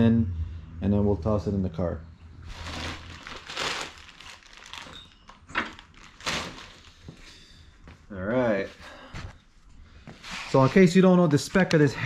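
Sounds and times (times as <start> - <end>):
plastic bag crinkling: 2.4 - 7.2.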